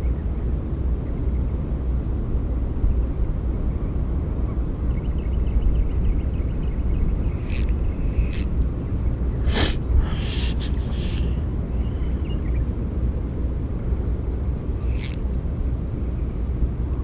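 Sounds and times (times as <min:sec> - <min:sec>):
wind on microphone: 0:00.0 - 0:17.0
fishing reel ticking: 0:07.4 - 0:08.5, 0:14.8 - 0:15.2
sharp clicks: 0:14.9 - 0:15.2.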